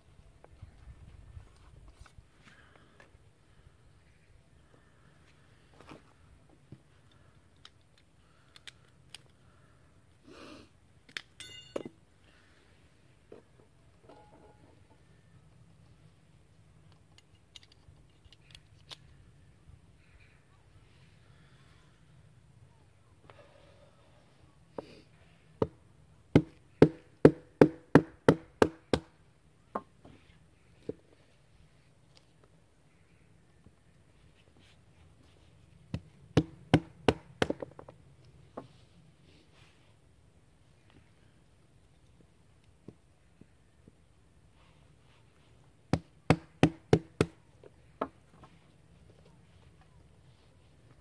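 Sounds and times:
hatchet chopping firewood: 25.6s - 29.1s, 35.9s - 37.8s, 45.9s - 47.4s.

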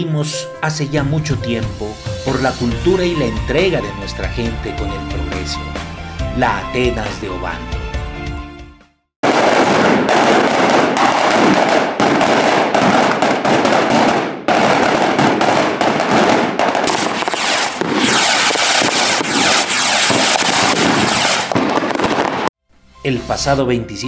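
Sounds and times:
firecrackers crackling: 9.2s - 22.5s.

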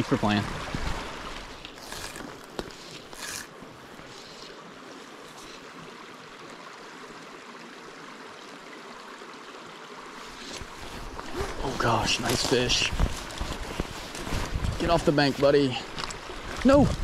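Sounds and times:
creek rushing over stones: 0.0s - 17.0s
brief rustle: 1.5s - 4.6s, 10.3s - 16.2s.

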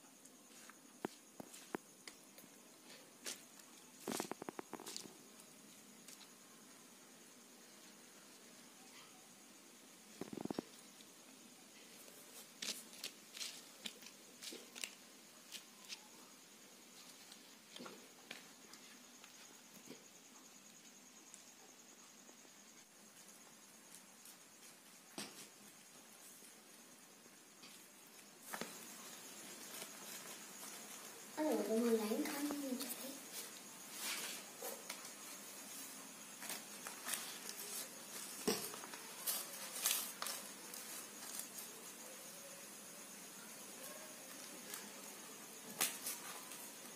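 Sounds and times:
leaves rustling and crinkling: 0.4s - 6.5s, 10.1s - 16.2s, 23.0s - 46.9s.

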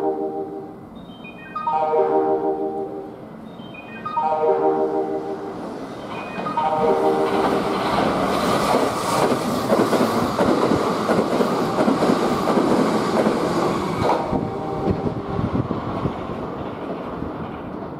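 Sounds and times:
electric train passing at speed: 0.0s - 17.9s
wheels clattering over rail joints: 7.2s - 14.4s.

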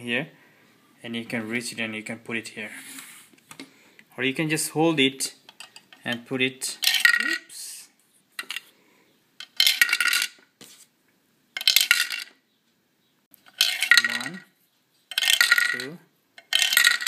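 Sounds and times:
plastic toy pieces clattering: 6.8s - 7.5s, 9.4s - 10.4s, 11.6s - 12.4s, 13.4s - 14.5s, 15.1s - 17.0s.

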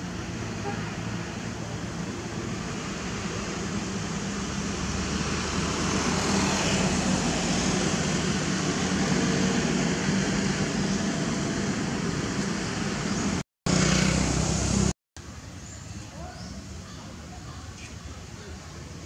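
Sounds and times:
vehicle engine hum: 0.0s - 15.5s.

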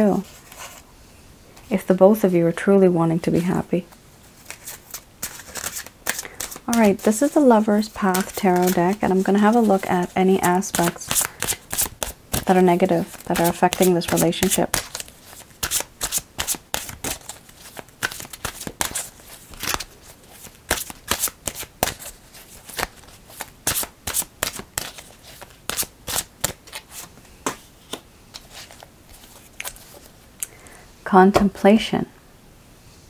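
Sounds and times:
playing cards being shuffled: 4.4s - 30.1s.

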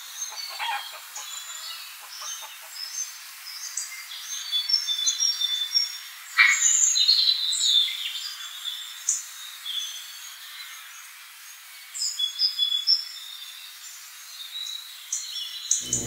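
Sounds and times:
hen clucking softly: 0.3s - 2.8s.

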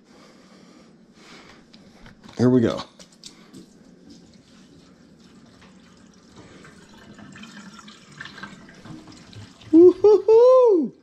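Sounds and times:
water trickling into a steel sink: 4.3s - 10.1s.

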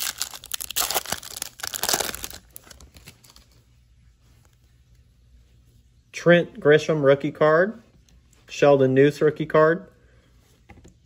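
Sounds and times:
foil wrapper tearing and crinkling: 0.0s - 3.5s.

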